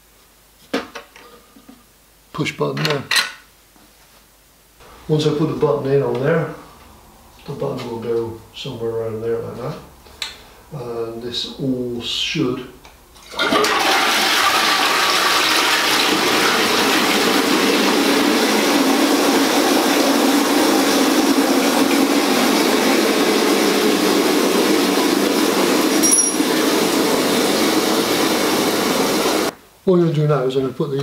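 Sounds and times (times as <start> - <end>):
water filling toilet cistern: 13.2 - 29.5.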